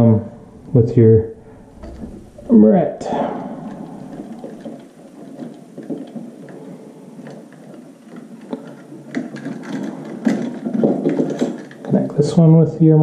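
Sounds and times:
faint rustling: 0.0 - 12.5.

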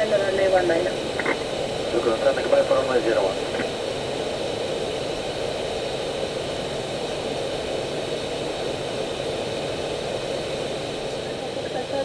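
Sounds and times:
faint high steady tones: 0.0 - 12.0.

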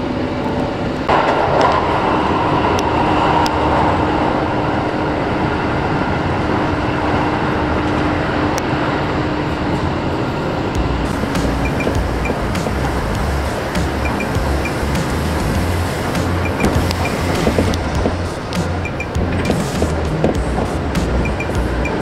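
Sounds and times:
train hum: 0.0 - 22.0
train wheels running on rails: 0.0 - 22.0
track clicks: 10.6 - 22.0.

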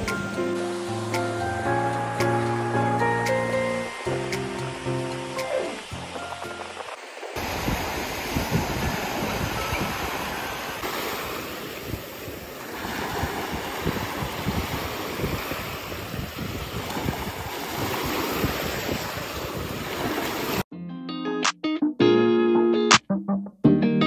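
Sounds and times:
surf washing over sand: 0.0 - 20.6
wind buffeting microphone: 5.9 - 20.6.

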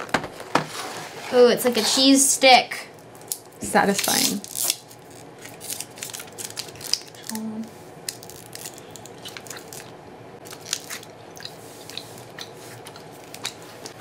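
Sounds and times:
plastic wrapper crinkling: 3.1 - 11.1
person humming: 7.2 - 7.7.

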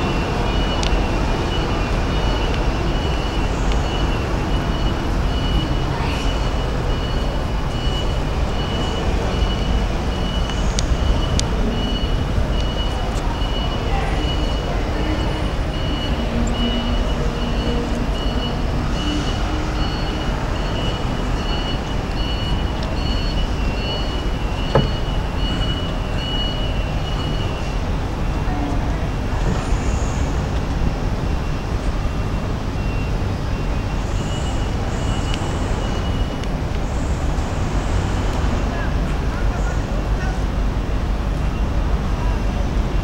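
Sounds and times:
low machinery rumble: 0.0 - 43.0
high electronic beeps: 0.1 - 27.7.

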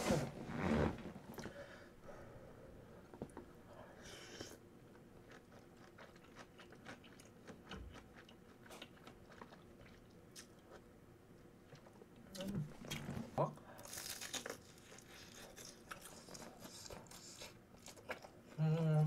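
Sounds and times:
person chewing with wet clicks: 4.9 - 10.9, 14.2 - 18.7.

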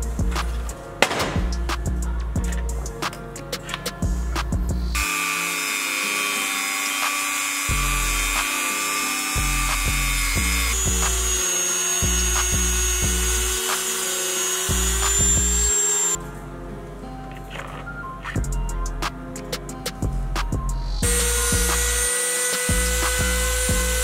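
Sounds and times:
background music with a beat: 0.0 - 5.1, 7.0 - 8.7, 9.4 - 11.4, 18.0 - 24.0
rotary tool wire brush whine: 5.0 - 16.2, 21.0 - 24.0.

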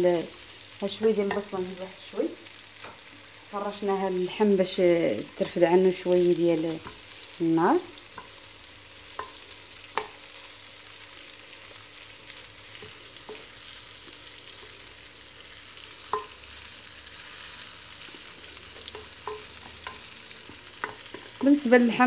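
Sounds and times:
meat and onions sizzling in oil: 0.0 - 22.0.

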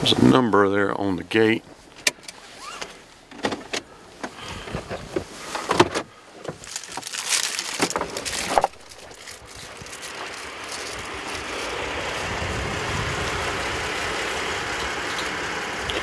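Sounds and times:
vehicle door opening: 1.9 - 7.1
vehicle idling: 3.0 - 16.0
wind rushing: 10.5 - 15.9.

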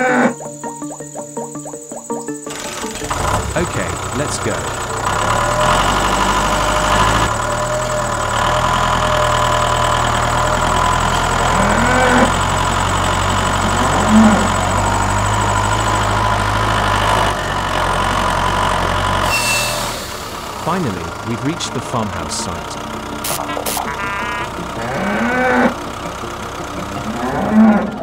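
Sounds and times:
tractor engine chugging: 2.2 - 28.0
rising and falling sounds: 23.1 - 28.0.

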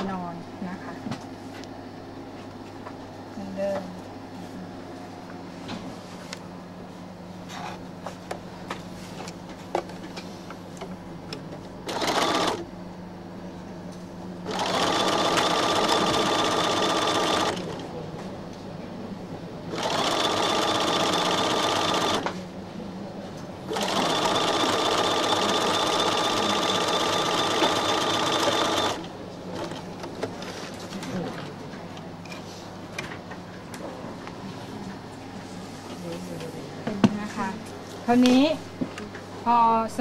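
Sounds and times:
sewing machine stitching: 11.8 - 12.6, 14.5 - 17.7, 19.7 - 22.4, 23.7 - 29.8.

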